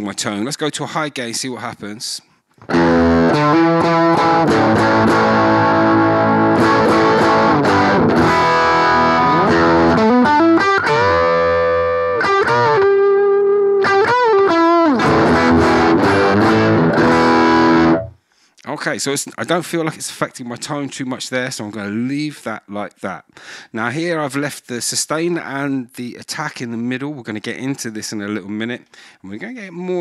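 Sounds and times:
distorted electric guitar: 0:02.6 - 0:18.2.

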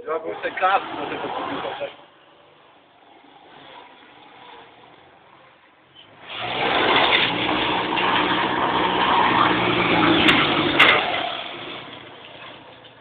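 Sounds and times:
go-kart engine running rough: 0:00.1 - 0:02.0, 0:06.1 - 0:13.0.

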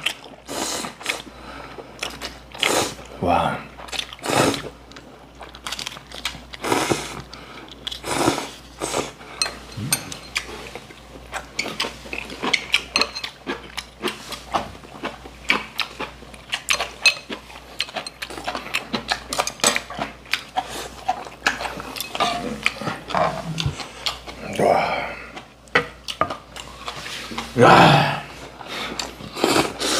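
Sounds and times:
chopsticks clinking on bowls: 0:09.4 - 0:10.5, 0:11.6 - 0:13.4, 0:16.6 - 0:18.6, 0:21.5 - 0:23.3.

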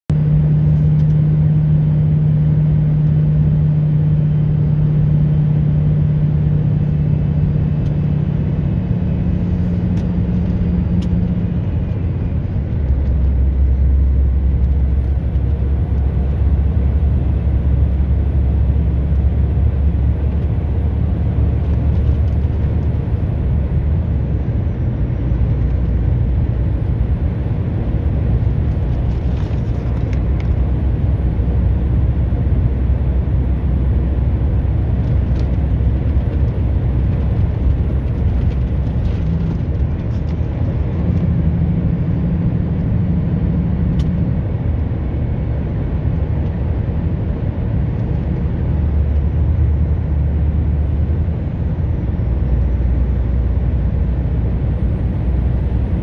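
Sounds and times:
vehicle engine and road noise: 0:00.0 - 0:56.0.

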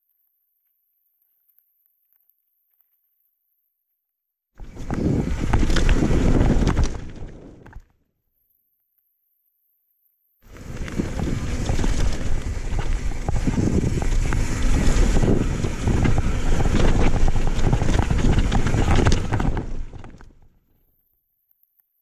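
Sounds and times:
wind buffeting microphone: 0:04.6 - 0:07.6, 0:10.5 - 0:20.3
bike knocks and rattles: 0:04.6 - 0:07.7, 0:10.5 - 0:20.4
tyres rumbling on dirt: 0:04.6 - 0:07.7, 0:10.5 - 0:20.4.

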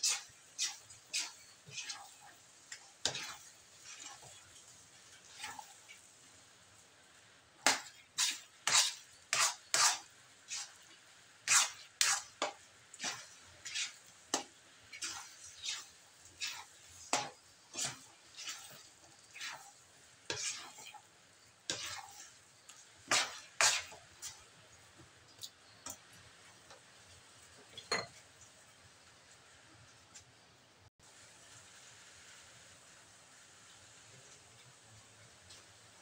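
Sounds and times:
spatula scraping a metal wok: 0:00.0 - 0:06.5, 0:07.5 - 0:24.8.

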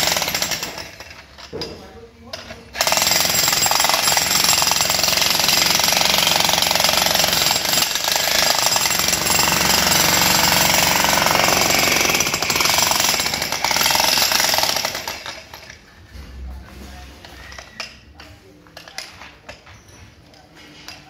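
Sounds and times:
demolition hammer hammering concrete: 0:00.0 - 0:15.8.

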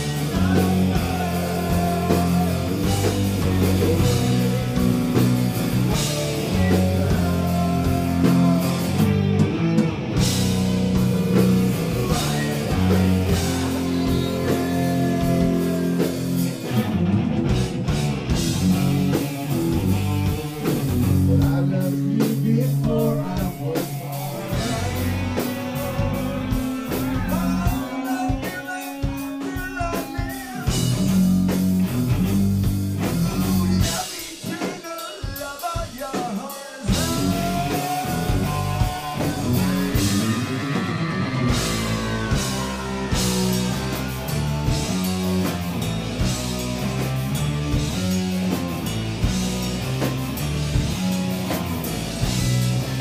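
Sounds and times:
person singing: 0:00.0 - 0:09.4, 0:11.8 - 0:16.7, 0:21.2 - 0:31.1, 0:33.0 - 0:44.5
electric guitars and bass: 0:00.0 - 0:34.6, 0:36.8 - 0:53.0
drum kit: 0:00.0 - 0:53.0.

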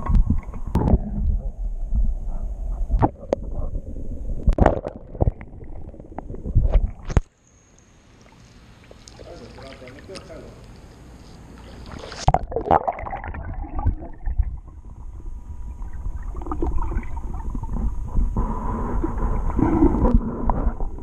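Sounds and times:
muffled underwater rumbling: 0:00.0 - 0:07.2, 0:12.1 - 0:21.0.

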